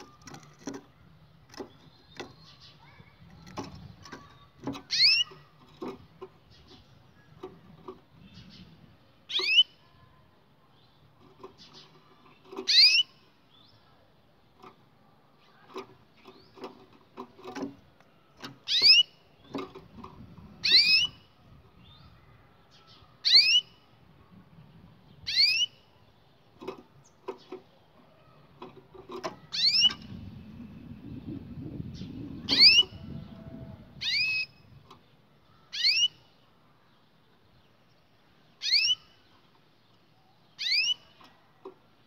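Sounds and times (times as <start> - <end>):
canary rising call notes: 32.4 - 34.5.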